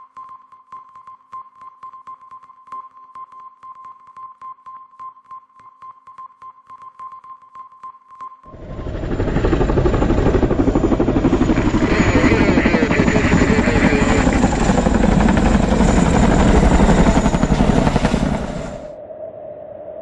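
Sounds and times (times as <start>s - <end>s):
helicopter rotors beating: 8.5s - 18.9s.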